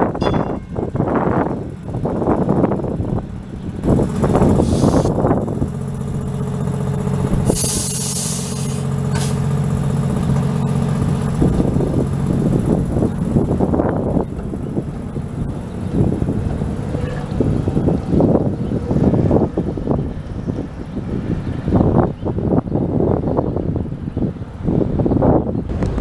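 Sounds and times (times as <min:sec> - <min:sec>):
streetcar electrical hum: 0:00.0 - 0:26.0
air hiss: 0:04.6 - 0:05.2.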